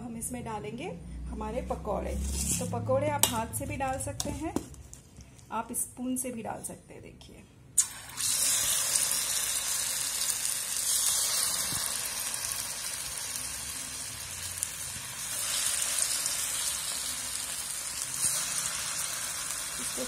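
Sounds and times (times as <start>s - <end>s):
batter sizzling in hot oil: 7.8s - 20.0s.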